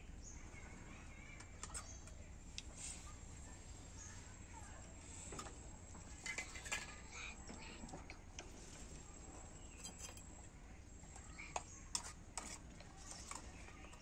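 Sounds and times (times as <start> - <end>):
metal spoon scraping steel pan: 11.9 - 13.4.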